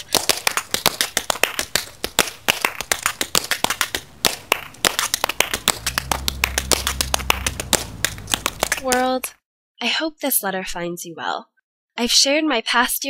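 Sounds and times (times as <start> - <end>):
tap shoes clicking on concrete: 0.0 - 9.1
low steady hum: 0.2 - 9.2.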